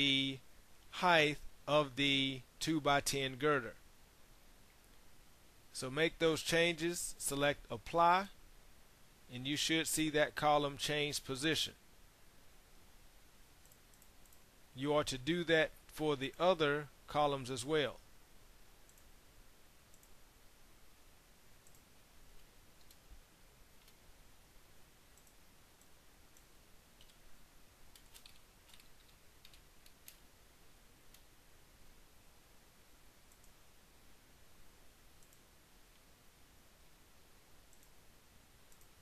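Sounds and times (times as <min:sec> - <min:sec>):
mouse clicks: 0:19.9 - 0:20.2, 0:21.6 - 0:23.0, 0:35.2 - 0:36.1, 0:37.7 - 0:38.0
keyboard keystrokes: 0:27.9 - 0:30.2.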